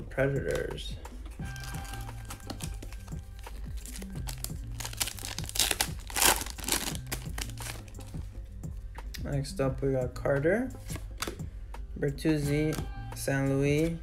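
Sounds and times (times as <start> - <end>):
background music: 0.0 - 14.0
foil wrapper crinkling: 1.6 - 8.1.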